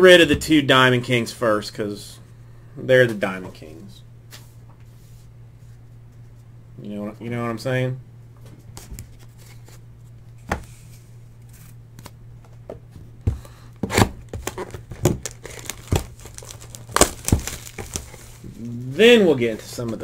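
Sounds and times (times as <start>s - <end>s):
plastic wrap crinkling and tearing: 14.3s - 18.9s
cardboard box handled: 14.4s - 18.4s
sharp crackles: 15.2s - 18.9s.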